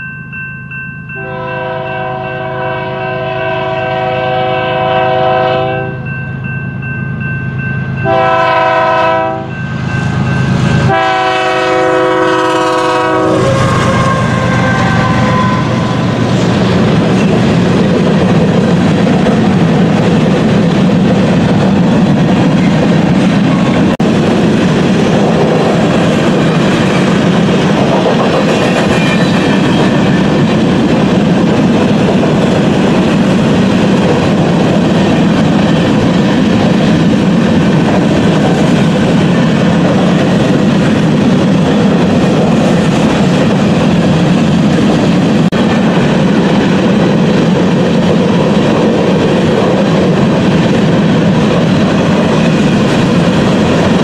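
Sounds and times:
diesel locomotive drone: 0.0 - 54.0
train air horn blasts: 1.2 - 6.0, 8.0 - 9.6, 10.8 - 16.2
train wheels rumbling on rails: 7.1 - 54.0.

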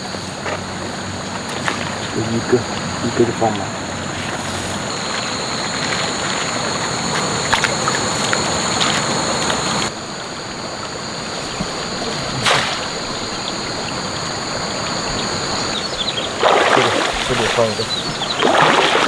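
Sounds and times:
stream water flowing: 0.0 - 19.0
fish trap splashing into water: 12.3 - 13.4, 16.2 - 19.0.

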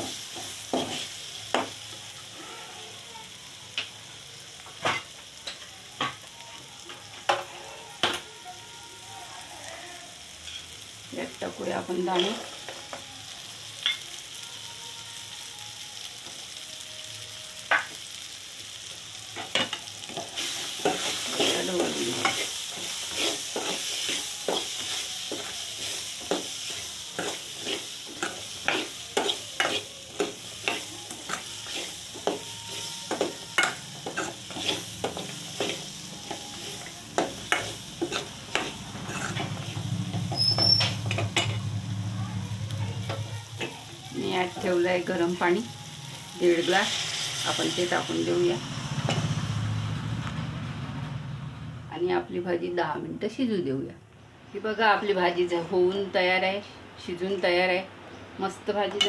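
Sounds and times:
food sizzling: 0.0 - 53.8, 54.6 - 59.0
metal spatula scraping pan: 19.4 - 41.7.

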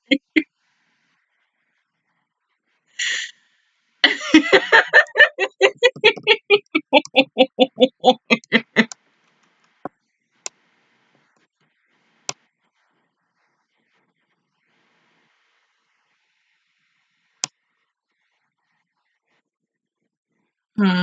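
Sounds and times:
woman laughing hard: 4.0 - 8.9.

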